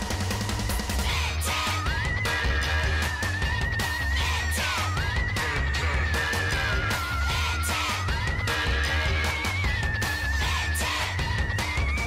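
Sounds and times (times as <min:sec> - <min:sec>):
upbeat music with heavy bass: 0:00.0 - 0:12.0.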